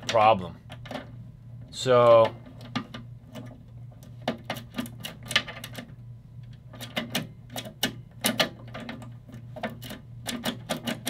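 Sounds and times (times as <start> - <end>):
safe latch clicking and clacking: 9.6 - 11.0.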